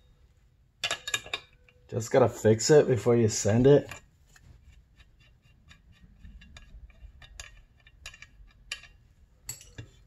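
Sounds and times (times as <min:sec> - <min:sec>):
hand tools clicking on metal: 0:06.5 - 0:09.9.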